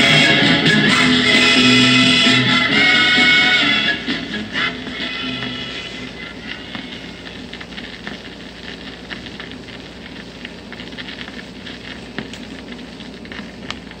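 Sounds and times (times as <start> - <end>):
vinyl record hiss and crackle: 0.0 - 14.0
vinyl record clicks: 4.0 - 14.0.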